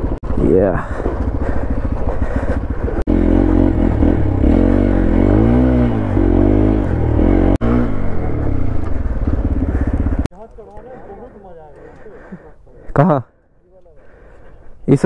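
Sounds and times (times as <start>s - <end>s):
motorcycle engine revving: 0.0s - 10.3s.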